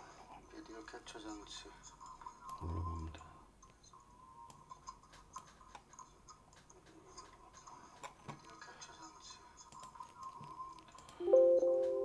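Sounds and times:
computer mouse clicks: 3.6 - 8.6, 9.7 - 11.2.

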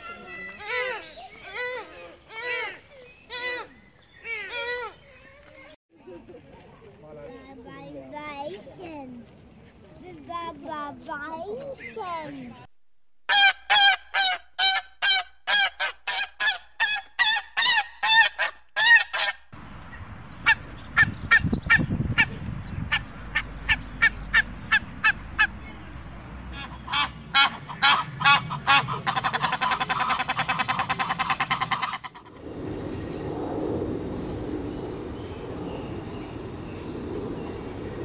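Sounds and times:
geese honking: 22.9 - 32.4.

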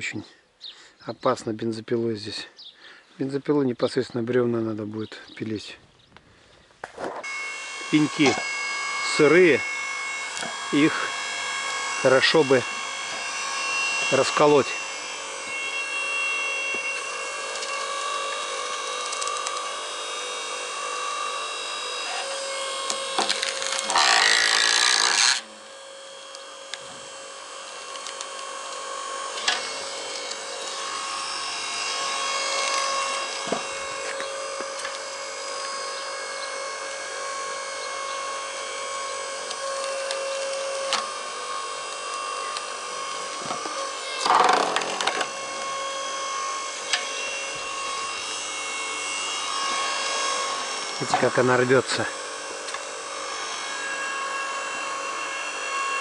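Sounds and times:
log splitter whine: 6.8 - 56.0
wood cracking and tearing: 17.5 - 19.7, 22.8 - 25.4.

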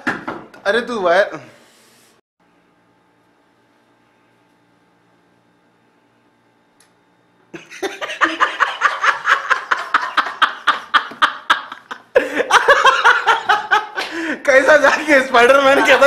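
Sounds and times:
man laughing hard: 7.6 - 16.0.

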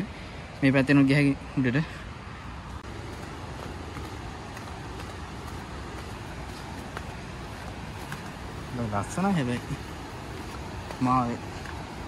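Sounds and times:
river flowing: 0.0 - 12.0
faint footsteps on stone steps: 2.0 - 12.0.

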